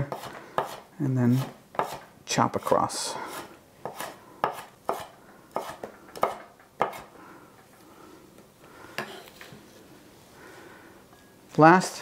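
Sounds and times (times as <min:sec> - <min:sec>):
knife chopping on wooden board: 0:00.0 - 0:00.8, 0:01.4 - 0:02.0, 0:03.3 - 0:07.1.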